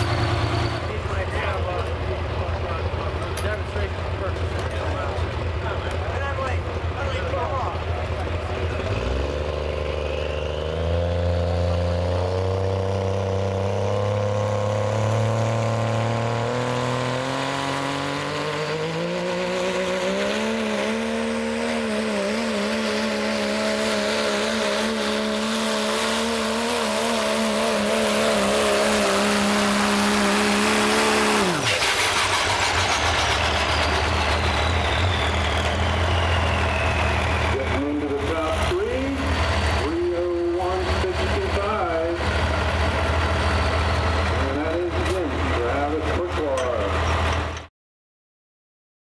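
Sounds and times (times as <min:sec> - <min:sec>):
diesel truck engine under load: 0:00.0 - 0:47.7
turbo whistle winding down: 0:31.0 - 0:38.0.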